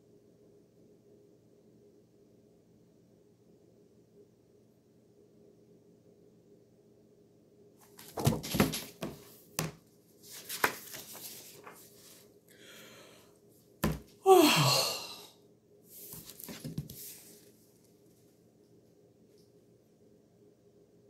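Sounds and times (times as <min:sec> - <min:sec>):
knocks and rustles: 0:08.0 - 0:09.8
breathy sighing: 0:12.5 - 0:13.3, 0:14.2 - 0:15.4
woman yawning: 0:14.2 - 0:15.4.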